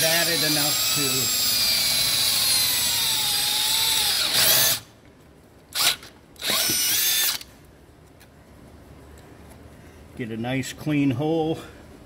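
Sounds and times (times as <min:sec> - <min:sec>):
cordless drill motor: 0:00.0 - 0:04.9, 0:05.8 - 0:07.5.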